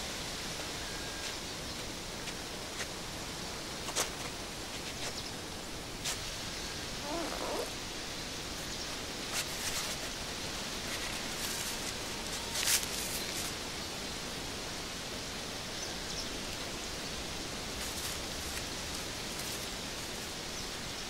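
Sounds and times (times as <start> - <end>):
outdoor hiss: 0.0 - 21.0
faint wavering call: 7.0 - 7.7
tree branches clicking and rustling: 10.8 - 13.6.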